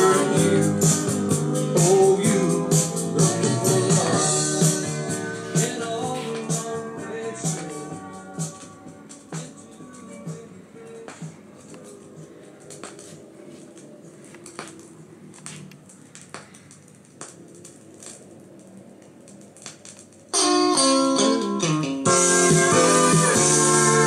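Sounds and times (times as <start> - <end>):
loud guitar music: 0.0 - 9.3, 20.4 - 24.0
record surface clicks and pops: 12.6 - 20.8.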